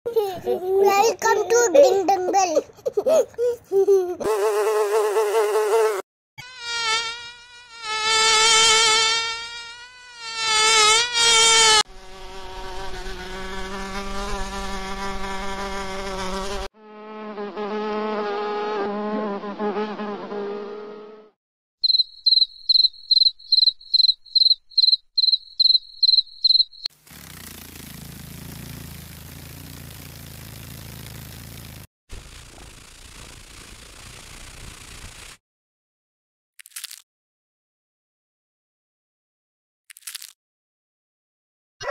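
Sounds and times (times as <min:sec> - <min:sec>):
mosquito whining buzz: 0:04.4 - 0:31.8
insect wings buzzing: 0:06.4 - 0:17.6, 0:21.8 - 0:35.4
cricket chirping: 0:21.8 - 0:26.9.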